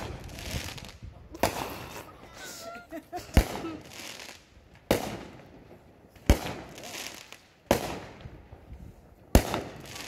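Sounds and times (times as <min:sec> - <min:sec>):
fireworks bangs: 0:00.0 - 0:01.8, 0:03.2 - 0:08.7, 0:09.3 - 0:10.0.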